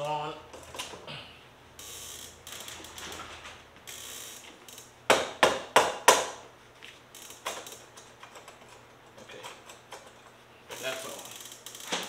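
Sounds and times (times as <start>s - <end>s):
ratchet wrench clicking: 1.8s - 3.0s, 3.9s - 4.9s, 7.1s - 7.8s, 10.7s - 12.0s
loud sharp knocks: 5.1s - 6.4s.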